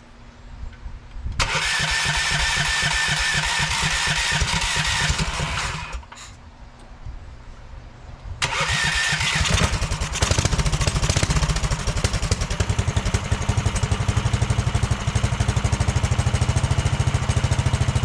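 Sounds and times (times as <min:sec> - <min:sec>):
small engine idling: 0:01.4 - 0:06.1, 0:08.4 - 0:18.0.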